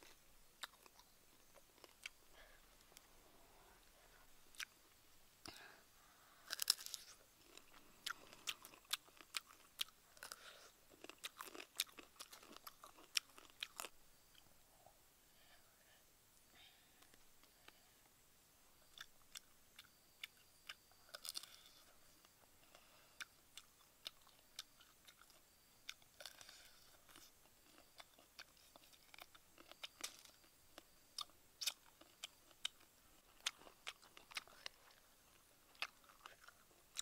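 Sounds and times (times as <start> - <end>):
crunching and chewing: 0.0 - 3.1, 4.5 - 4.8, 6.4 - 14.4, 18.8 - 37.0.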